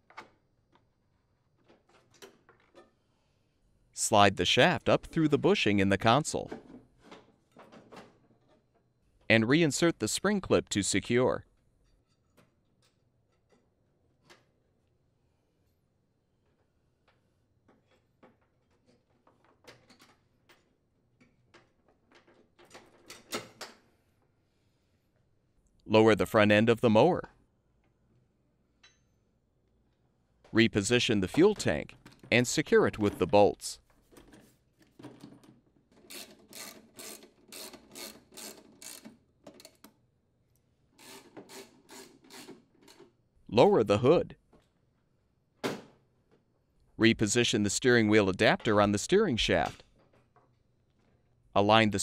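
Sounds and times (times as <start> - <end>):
socket wrench ratcheting: 36.0 - 39.1.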